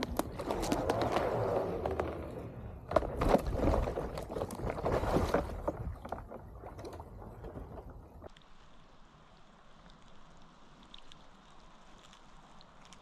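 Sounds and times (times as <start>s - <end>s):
paddle splashes: 0.0s - 8.3s
ice cracking and crunching: 0.0s - 8.4s.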